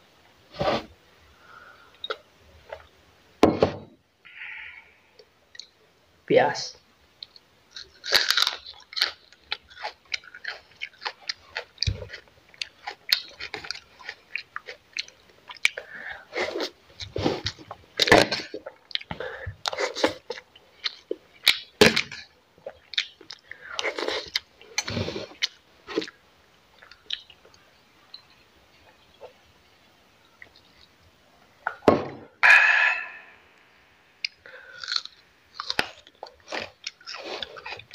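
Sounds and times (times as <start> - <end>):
person chewing crunchy food: 7.2 - 26.2, 26.8 - 27.6, 34.2 - 37.9.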